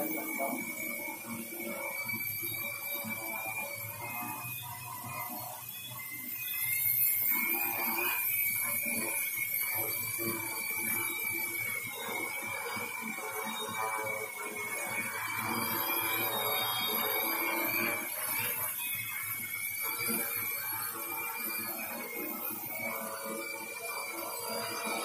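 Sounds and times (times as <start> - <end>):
drone propellers whining: 0.0 - 0.7.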